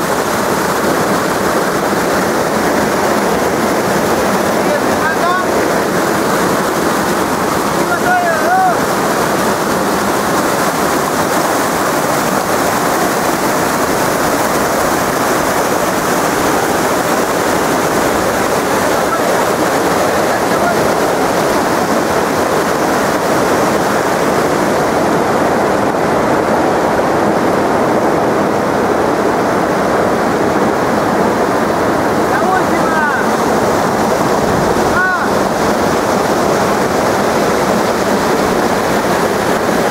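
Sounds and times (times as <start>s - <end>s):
river rapids rushing over stones: 0.0s - 39.9s.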